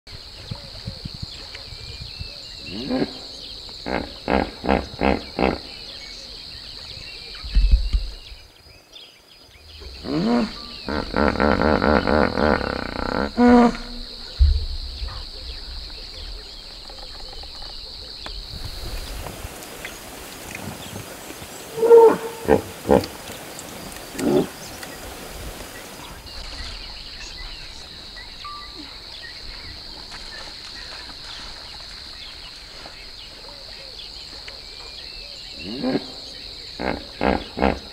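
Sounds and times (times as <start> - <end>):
hippopotamus honking grunts: 3.8 - 5.7, 21.7 - 23.2, 36.8 - 37.9.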